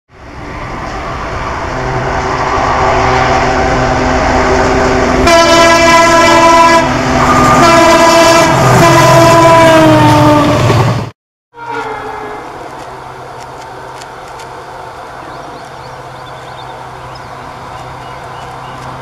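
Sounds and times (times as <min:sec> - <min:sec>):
diesel locomotive approaching: 0:00.1 - 0:19.0
rail noise: 0:00.1 - 0:19.0
locomotive air horn blasts: 0:01.7 - 0:10.6, 0:11.6 - 0:12.6.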